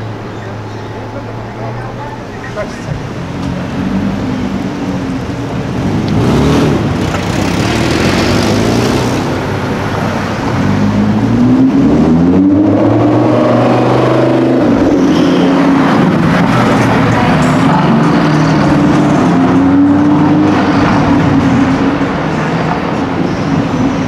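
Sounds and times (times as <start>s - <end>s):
street traffic: 0.0s - 24.0s.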